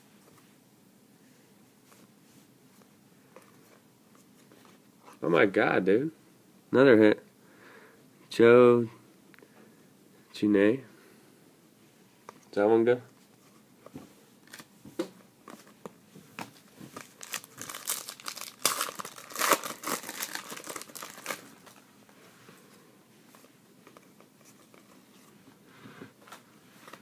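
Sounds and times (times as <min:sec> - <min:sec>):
foil wrapper tearing and crinkling: 0:17.0 - 0:21.7.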